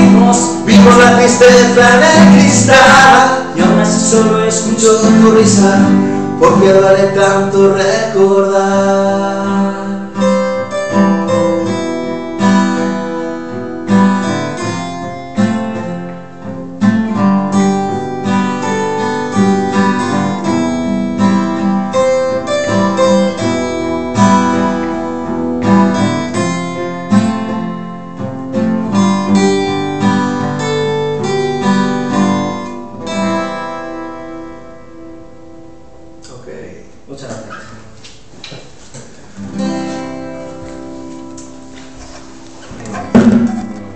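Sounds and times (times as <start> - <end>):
acoustic guitars strumming: 0.0 - 36.4, 37.5 - 43.9.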